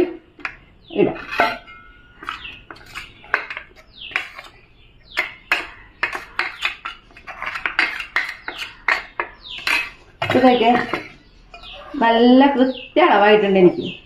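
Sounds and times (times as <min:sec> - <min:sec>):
spoon scraping inside a jar: 0:01.1 - 0:04.6, 0:05.2 - 0:12.0.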